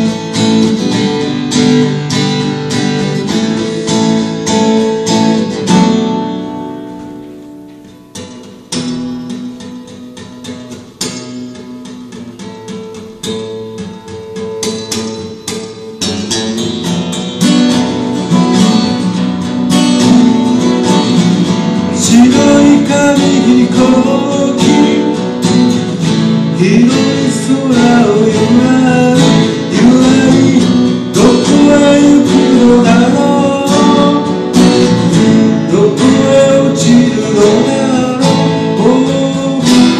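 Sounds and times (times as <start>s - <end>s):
acoustic guitars playing folk: 0.0s - 39.9s
man singing: 21.7s - 39.9s.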